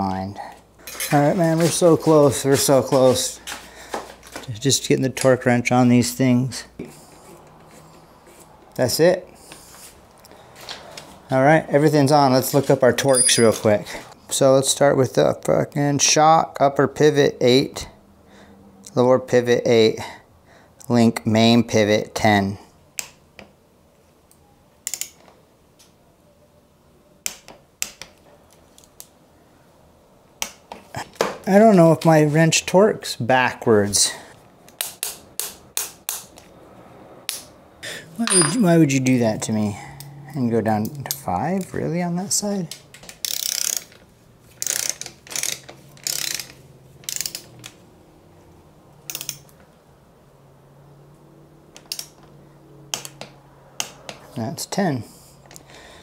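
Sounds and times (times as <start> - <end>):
torque wrench clicking: 43.2 - 43.9, 44.6 - 47.5, 49.1 - 49.5.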